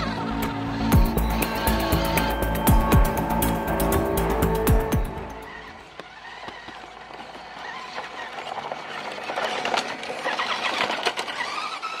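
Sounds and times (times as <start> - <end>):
electric motor whine: 0.0 - 12.0
tyres crunching over gravel: 5.2 - 12.0.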